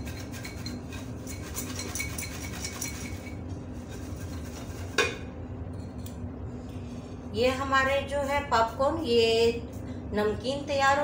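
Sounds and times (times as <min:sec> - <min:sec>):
popcorn rattling in glass bowl: 0:00.0 - 0:03.4.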